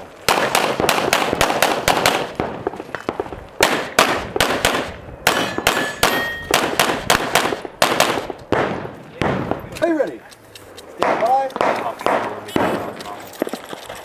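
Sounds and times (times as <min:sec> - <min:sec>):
pistol shots: 0:00.2 - 0:09.9, 0:11.0 - 0:13.0
steel targets clanging: 0:05.4 - 0:06.6.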